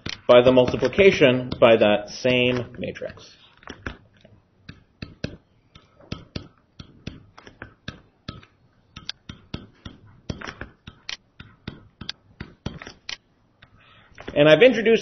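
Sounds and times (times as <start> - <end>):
stylus tapping on tablet screen: 0.0 - 1.8, 3.6 - 14.4.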